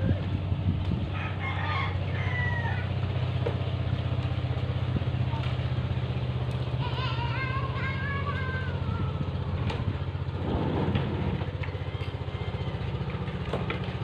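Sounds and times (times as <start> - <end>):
small engine idling: 0.0 - 14.0.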